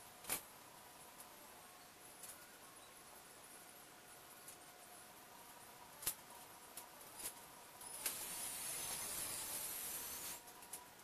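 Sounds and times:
high wavering whine: 0.0 - 11.0
steady hiss: 0.0 - 11.0.

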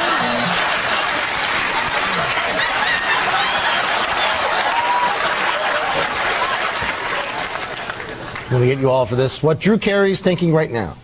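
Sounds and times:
audience laughing: 0.0 - 7.9
audience applauding: 0.0 - 9.0.

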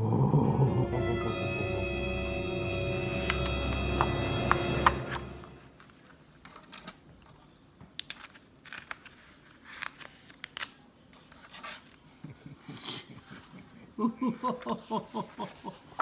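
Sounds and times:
picture book pages rustling: 5.1 - 12.4.

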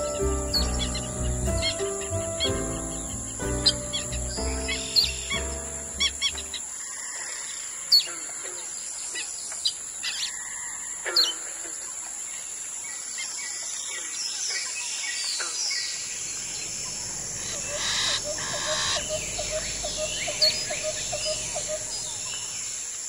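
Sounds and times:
background music: 0.0 - 6.7, 16.6 - 22.5
steady high-pitched hiss: 0.0 - 7.8, 15.6 - 23.0
wild birds chirping: 0.0 - 23.0.

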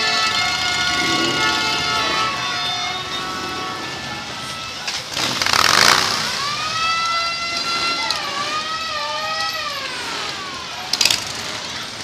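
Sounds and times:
loud rush of noise: 0.0 - 8.8
siren wailing: 0.0 - 11.0.

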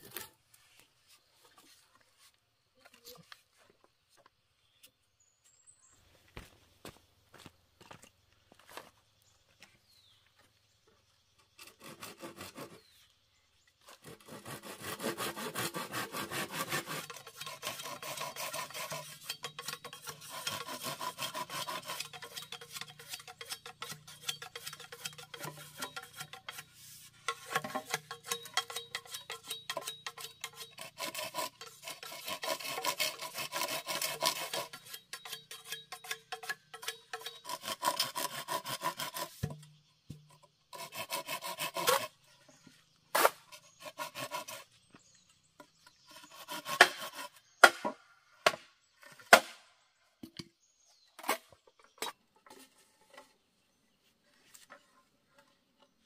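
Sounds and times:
blade rasping bamboo: 11.4 - 13.0, 13.8 - 47.9.

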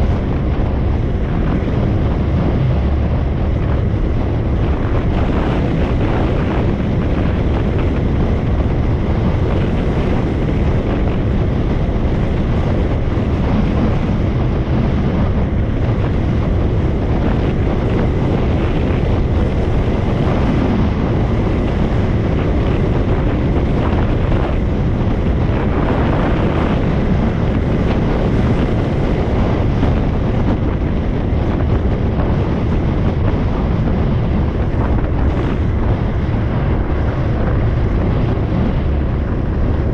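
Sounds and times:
motorbike road and engine noise: 0.0 - 39.9
wind noise on microphone: 0.0 - 39.9.

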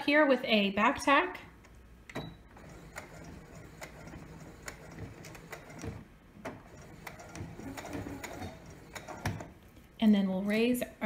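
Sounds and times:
sewing machine motor hum: 2.5 - 9.6.

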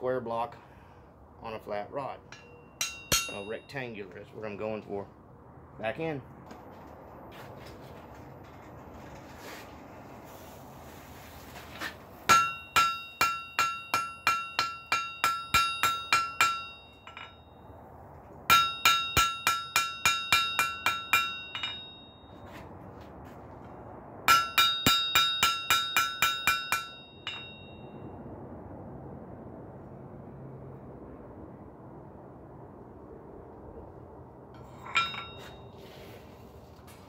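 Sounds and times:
hammer striking steel on anvil: 2.3 - 4.0, 12.3 - 17.6, 18.5 - 22.5, 24.3 - 27.9, 34.6 - 35.7.

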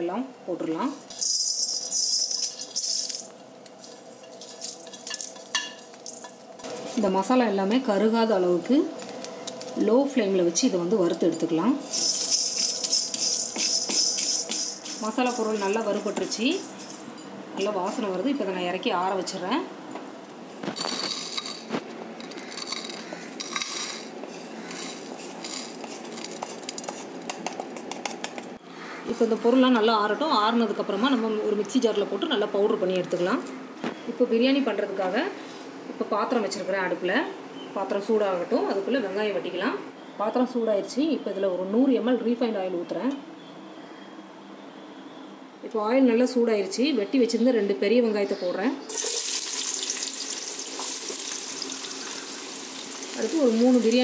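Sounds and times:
dry spices pattering into a pan: 1.1 - 6.9, 11.8 - 17.1, 22.4 - 28.4, 48.9 - 54.0
seeds sliding out of pan: 11.8 - 16.0.

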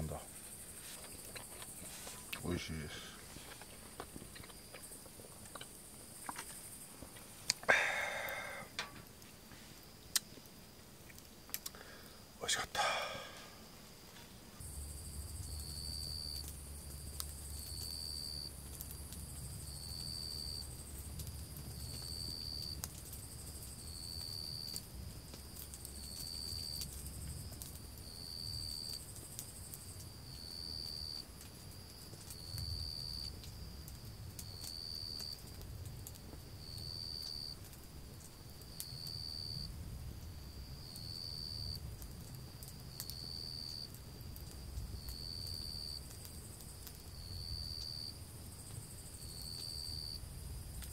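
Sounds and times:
insect chorus: 0.0 - 50.9
insect short high call: 7.6 - 8.8, 12.4 - 13.8.

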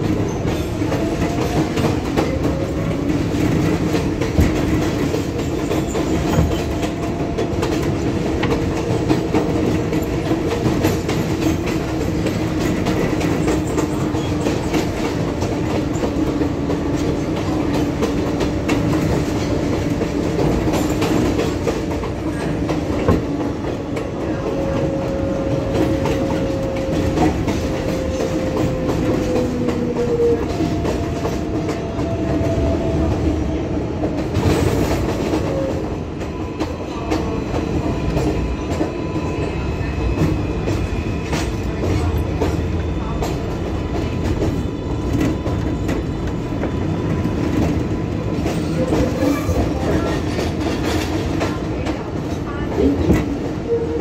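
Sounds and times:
rail joint clicking: 0.0 - 39.4
train wheels rumbling on rail: 0.0 - 54.0.

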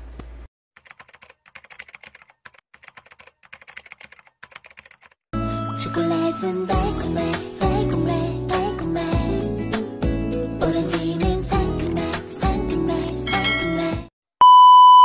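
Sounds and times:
keyboard typing: 0.8 - 5.2
music: 5.4 - 14.1.

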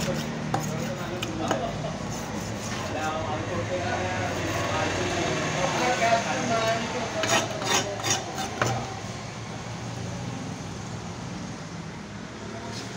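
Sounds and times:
knife chopping on wooden block: 0.0 - 2.9, 7.2 - 8.8.

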